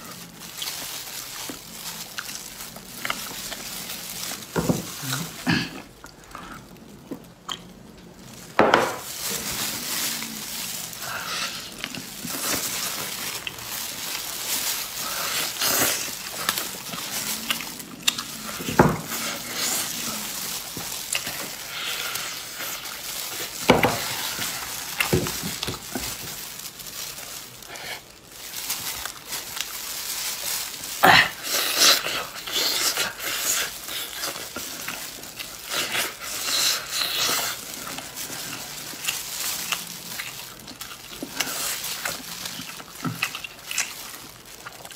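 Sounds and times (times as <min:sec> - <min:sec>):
meat tearing crackles: 0:00.0 - 0:44.9
wet chewing and smacking: 0:09.2 - 0:27.6, 0:28.2 - 0:44.9.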